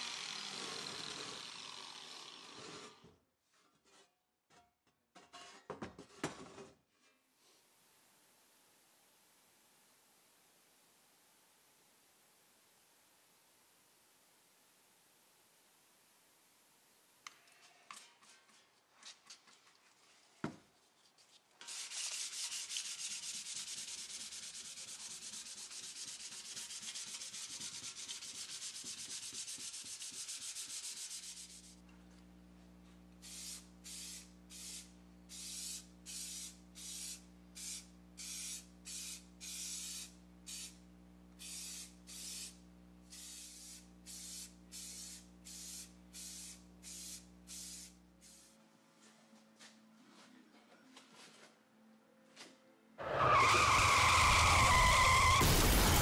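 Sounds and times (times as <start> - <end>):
paint spraying hiss: 21.6 - 31.8, 33.2 - 40.8, 41.4 - 48.6
sandpaper rubbing on metal: 21.6 - 31.8
steady electric hum: 31.6 - 48.9.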